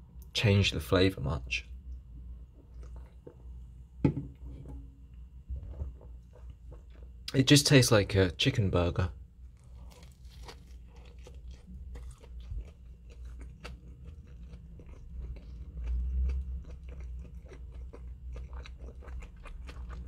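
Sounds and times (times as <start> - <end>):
chewing and crunching: 2.6 - 3.6, 5.6 - 7.4, 9.5 - 20.0.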